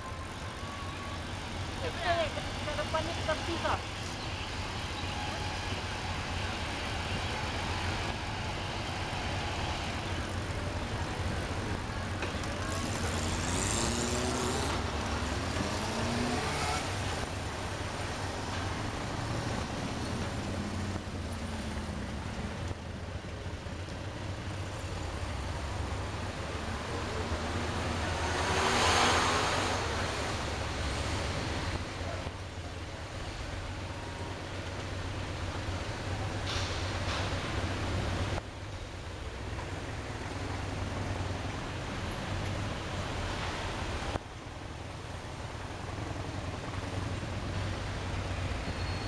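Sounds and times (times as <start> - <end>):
engine revving: 12.6 - 17.3, 27.3 - 31.0
vehicle passing: 12.6 - 17.3, 26.8 - 31.8.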